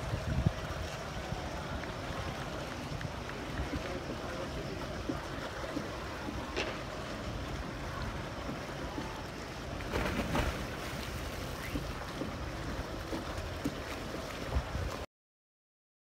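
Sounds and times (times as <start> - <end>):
wind on microphone: 0.0 - 9.4, 10.0 - 15.0
boat motor rumble: 0.0 - 15.0
rushing water: 0.0 - 15.1.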